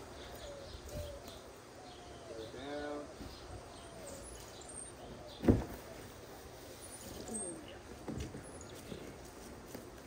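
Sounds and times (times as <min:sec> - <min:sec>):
dove cooing: 0:00.0 - 0:07.8
small birds chirping: 0:00.0 - 0:10.0.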